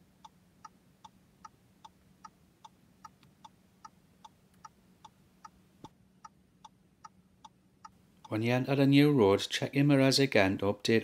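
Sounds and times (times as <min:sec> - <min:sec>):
low steady hum: 0:00.0 - 0:11.0
turn signal ticking: 0:00.2 - 0:08.4.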